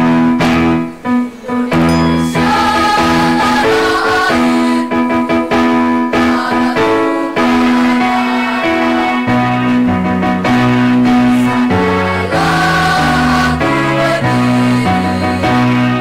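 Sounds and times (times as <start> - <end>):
piano accompaniment: 0.0 - 16.0
children's choir singing: 1.4 - 9.9, 10.5 - 16.0.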